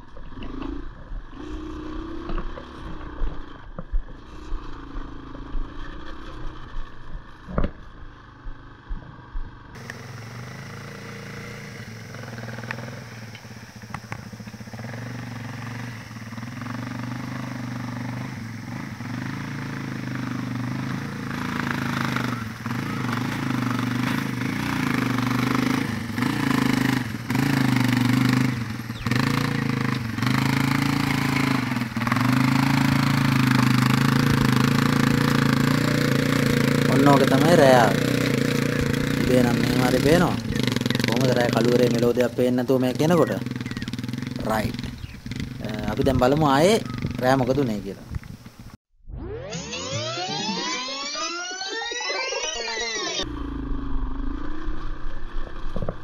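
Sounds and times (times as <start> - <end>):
knocks and rattles from trail: 0.0 - 9.8, 12.2 - 15.6, 19.4 - 48.8, 54.7 - 56.0
motorcycle engine climbing: 0.0 - 56.0.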